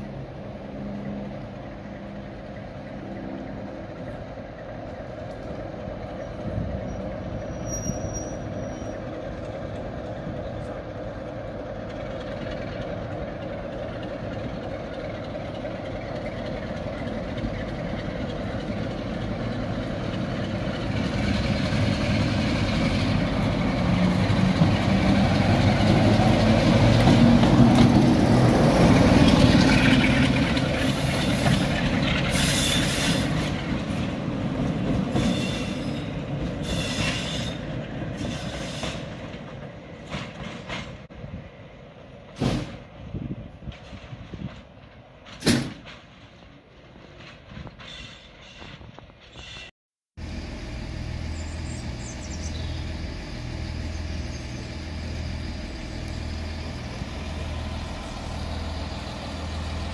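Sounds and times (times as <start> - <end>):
diesel locomotive engine: 0.0 - 59.9
short high squeals: 6.9 - 9.0.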